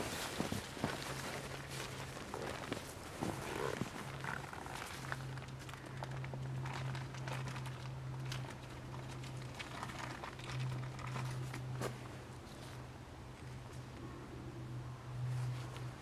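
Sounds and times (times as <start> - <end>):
tarp fabric rustling: 0.0 - 8.6.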